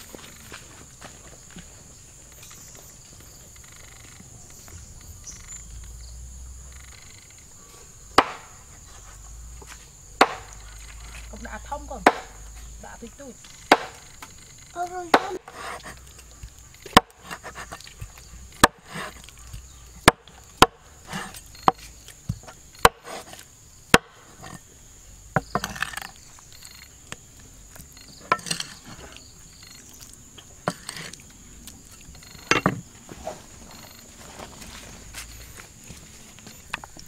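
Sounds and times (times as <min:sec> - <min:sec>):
high insect drone: 0:00.0 - 0:37.0
chopping wood: 0:08.2 - 0:08.6, 0:10.2 - 0:10.6, 0:12.0 - 0:12.4, 0:13.6 - 0:24.6.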